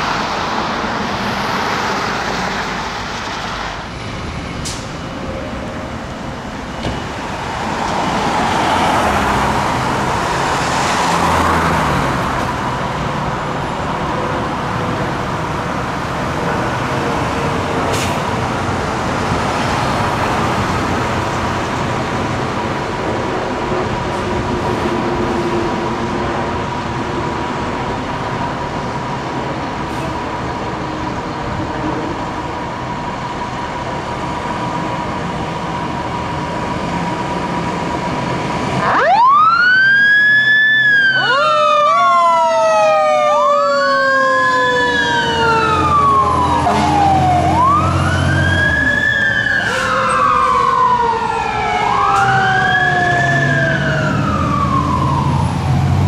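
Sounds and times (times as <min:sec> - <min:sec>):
fire truck engine running: 0:26.6 - 0:56.0
electronic siren wailing: 0:38.8 - 0:56.0.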